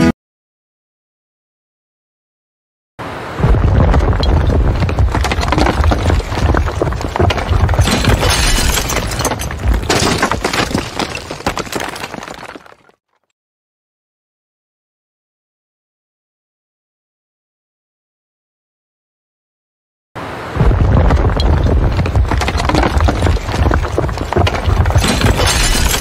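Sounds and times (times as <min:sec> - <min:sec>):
deep rumble: 0:03.4 - 0:09.9, 0:20.6 - 0:26.0
debris crashing: 0:03.4 - 0:13.2, 0:20.6 - 0:26.0
glass breaking: 0:04.0 - 0:13.0, 0:22.2 - 0:26.0.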